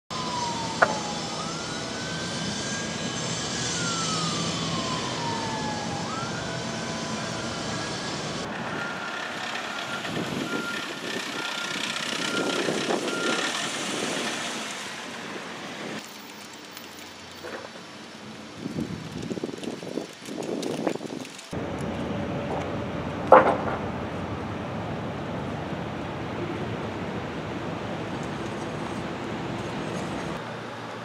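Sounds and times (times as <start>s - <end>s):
reversing alarm beeping: 0.1s - 14.4s
traffic noise: 0.1s - 31.0s.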